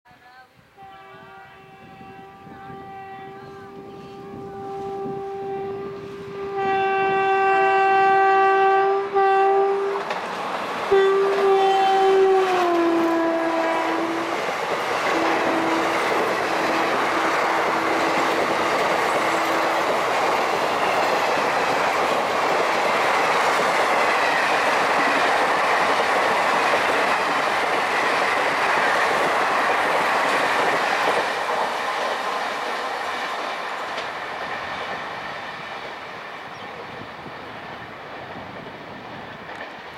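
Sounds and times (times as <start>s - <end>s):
locomotive horn blasts: 0.8s - 10.1s, 10.9s - 14.4s, 15.1s - 20.1s
train rushing and clattering past: 8.6s - 39.9s.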